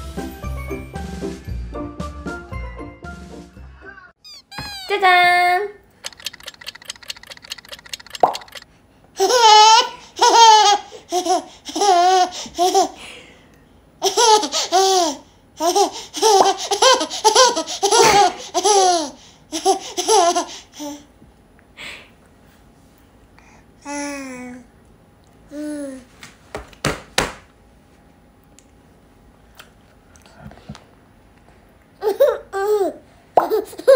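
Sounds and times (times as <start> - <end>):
baby giggling: 4.3 - 5.0, 9.2 - 13.0, 14.0 - 21.0, 32.0 - 33.9
rapid clicks: 6.0 - 8.6.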